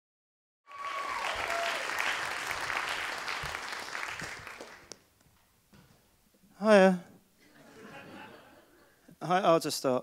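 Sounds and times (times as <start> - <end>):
audience applauding: 0.7 - 5.0.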